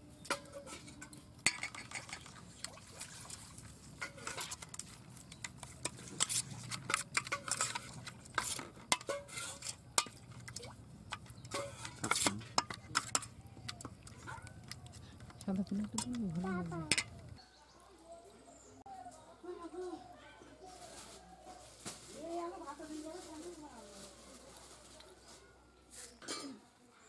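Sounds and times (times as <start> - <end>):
spoon scraping steel bowl: 4.0 - 17.4.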